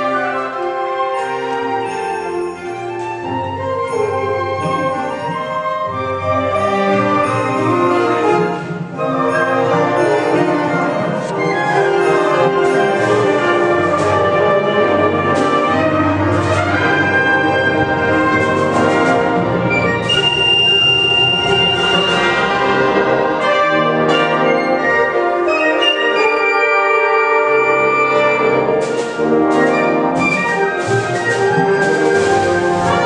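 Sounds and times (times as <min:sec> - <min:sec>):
wind ensemble playing: 0:00.0 - 0:33.0
percussion strikes: 0:01.1 - 0:24.5, 0:27.8 - 0:33.0.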